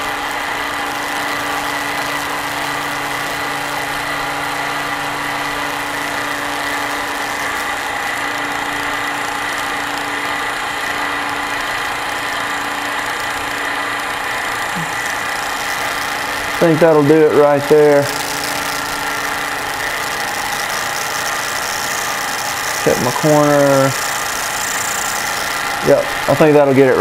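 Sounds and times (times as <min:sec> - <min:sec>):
milling machine cutting: 0:00.0 - 0:27.0
lower hum: 0:14.4 - 0:26.4.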